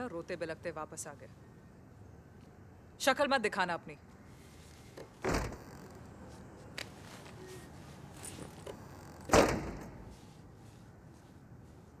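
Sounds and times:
door shutting thud: 5.2 - 5.7, 9.2 - 10.1.

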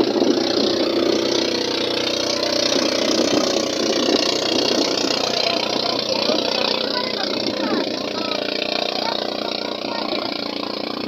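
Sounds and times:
small boat engine running: 0.0 - 11.0.

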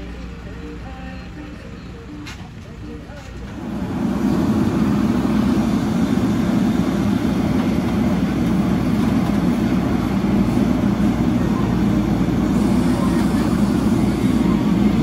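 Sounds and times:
heavy diesel engine rumbling: 0.0 - 15.0.

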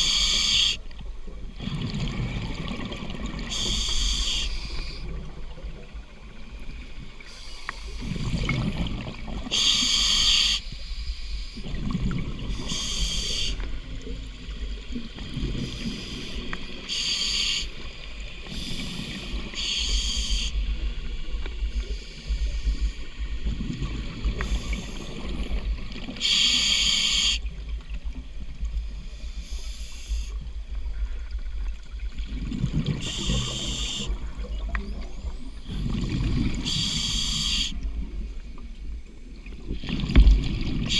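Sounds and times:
low rumbling water noise: 0.0 - 40.9
exhaled bubbles underwater: 1.3 - 7.3, 7.9 - 9.9, 11.6 - 17.6, 18.3 - 26.6, 31.6 - 40.9.

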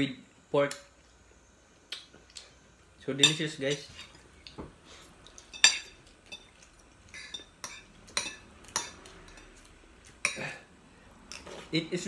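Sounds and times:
cutlery clinking on plates: 5.4 - 9.6.

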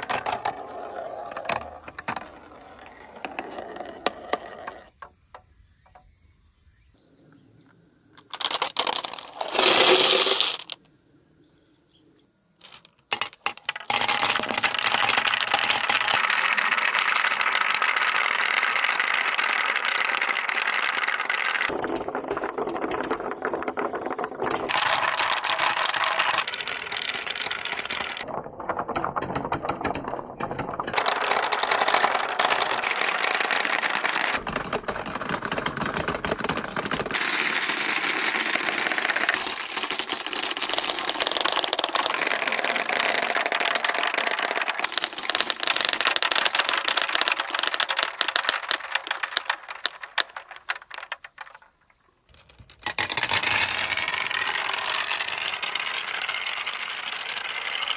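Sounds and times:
marbles rolling and clacking: 0.0 - 6.1, 8.2 - 10.9, 12.6 - 57.9.

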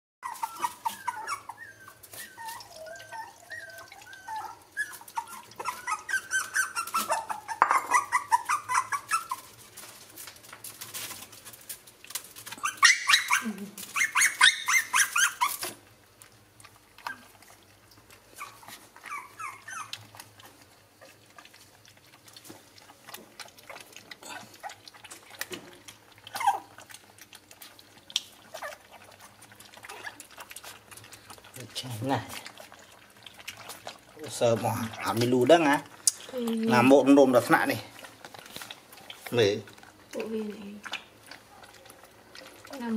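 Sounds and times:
puppies whining and whimpering: 0.2 - 9.6, 12.5 - 15.8, 18.3 - 20.2, 26.2 - 27.0
puppies lapping milk: 0.2 - 42.9.

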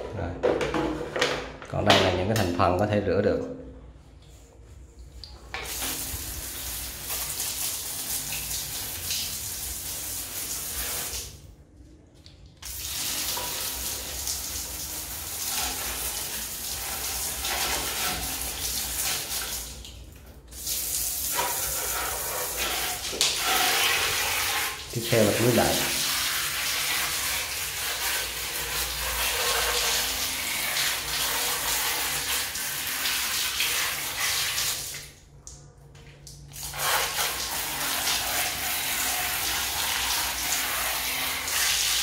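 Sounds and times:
water spraying and splashing on plastic: 4.4 - 11.5, 12.4 - 42.0.

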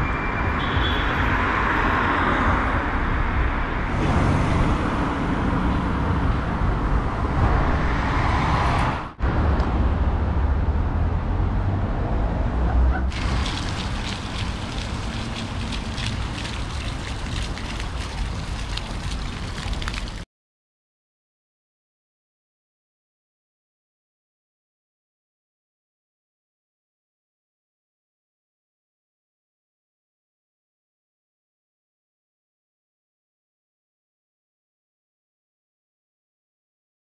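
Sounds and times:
rumble of passing cars: 0.0 - 20.2.

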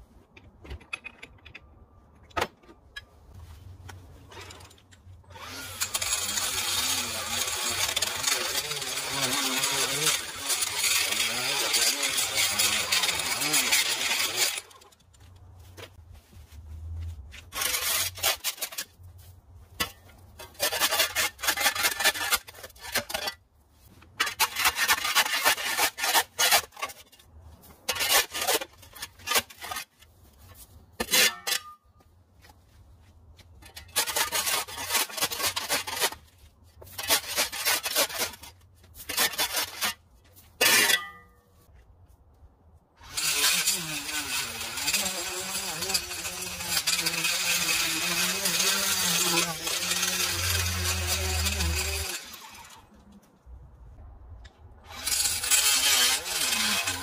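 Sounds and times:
shovel scraping on concrete: 2.9 - 32.8, 33.4 - 41.7, 43.0 - 53.2, 54.8 - 57.0
electric edger cutting: 5.3 - 14.8, 43.0 - 52.9, 54.9 - 57.0.

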